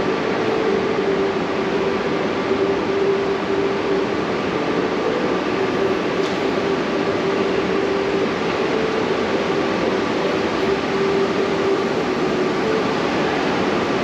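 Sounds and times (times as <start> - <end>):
escalator mechanical hum: 0.0 - 14.0
ventilation noise: 0.0 - 14.0.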